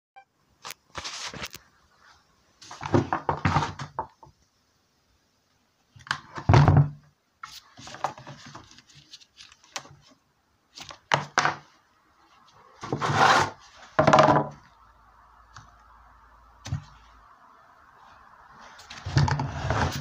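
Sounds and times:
scraping noises: 12.4 - 14.0, 18.6 - 20.0.

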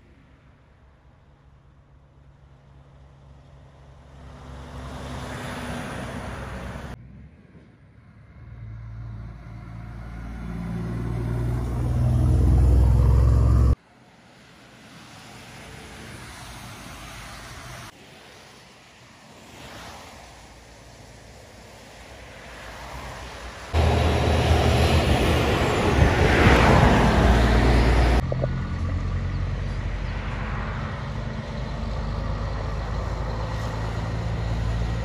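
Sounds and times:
traffic swishing on wet road: 0.0 - 35.0
diesel trucks passing: 1.2 - 35.0
truck engine low drone: 6.8 - 13.8, 23.8 - 35.0.

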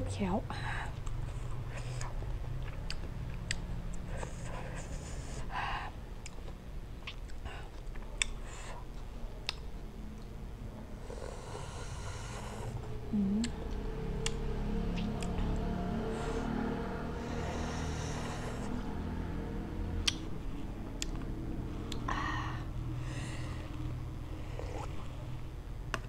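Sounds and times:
steady low hum: 0.0 - 26.0
sharp mouth clicks: 2.7 - 4.0, 6.2 - 7.4, 13.2 - 15.4, 20.0 - 20.3, 21.9 - 22.1
lip smacks and sucking: 6.2 - 8.4, 13.4 - 15.4, 20.0 - 20.3
breathy hisses of air: 11.0 - 12.9, 16.0 - 19.2
person humming: 13.1 - 13.7.

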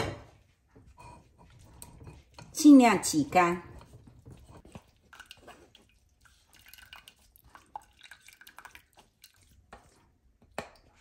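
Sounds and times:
juice dripping from a sieve: 4.9 - 9.9.

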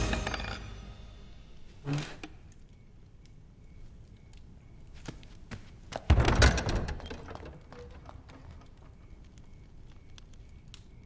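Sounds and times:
heavy door slamming: 6.0 - 8.7.

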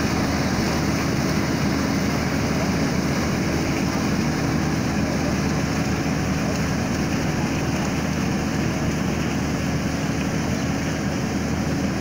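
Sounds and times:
combine harvester engine drone: 0.0 - 12.0.

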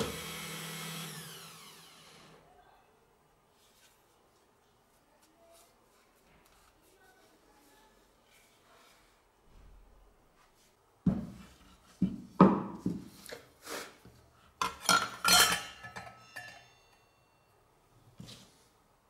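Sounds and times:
saw blade ringing: 15.7 - 17.5.

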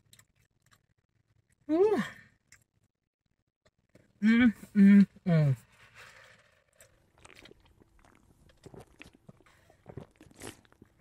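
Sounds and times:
sipping through a straw: 5.6 - 10.8.

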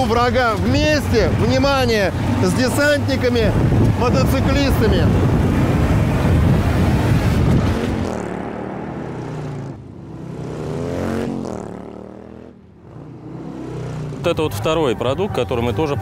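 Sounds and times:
off-road engines rumbling: 0.0 - 16.0
engine revving past: 2.1 - 14.5.

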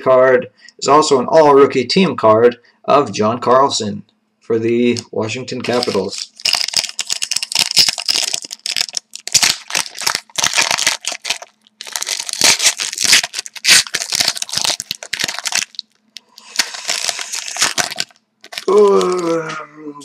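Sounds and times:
wrapper tearing and crinkling: 5.6 - 19.4.

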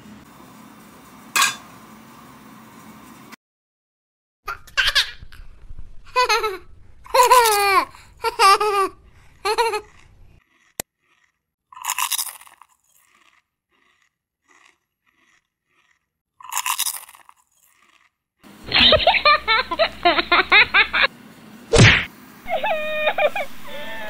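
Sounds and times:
crunchy munching: 7.3 - 18.8.

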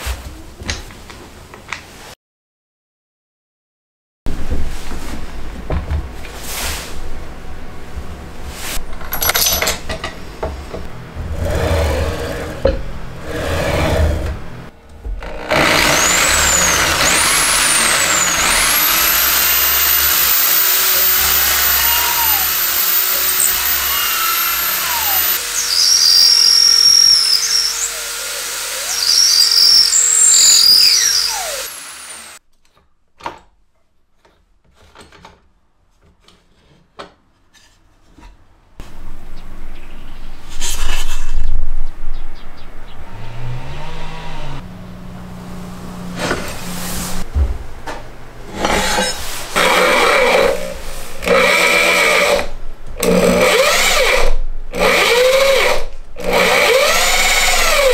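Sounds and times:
electric drill boring into wood: 15.2 - 32.4, 49.6 - 57.9
knocks and rustling: 46.2 - 49.3.

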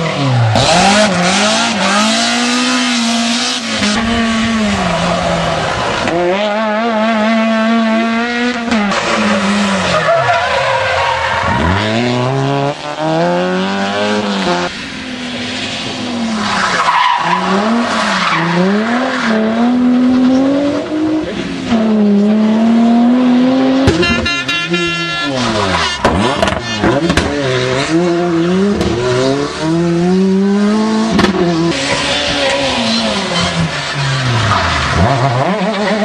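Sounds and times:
rally car engine revving: 0.0 - 36.0
tyre squeal and skidding: 8.8 - 12.1, 15.4 - 19.5, 23.9 - 28.0, 31.4 - 36.0.

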